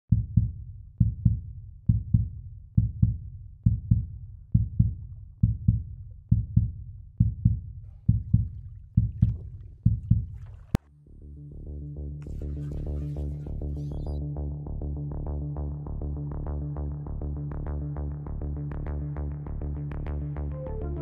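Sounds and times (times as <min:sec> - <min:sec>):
heartbeat thumps: 0:00.1 - 0:10.8.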